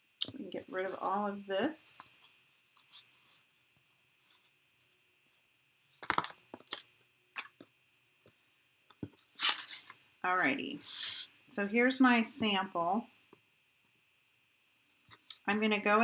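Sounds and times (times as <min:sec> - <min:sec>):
paper rustling: 0:02.1 - 0:06.8, 0:09.0 - 0:10.0.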